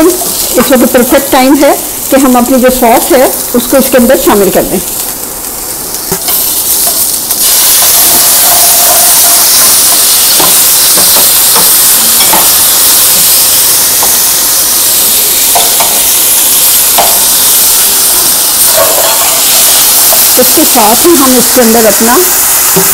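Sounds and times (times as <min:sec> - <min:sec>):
vegetables sizzling in pan: 0:00.0 - 0:22.9
metal spatula tapping pan: 0:15.5 - 0:16.1, 0:17.0 - 0:17.3, 0:18.6 - 0:19.4.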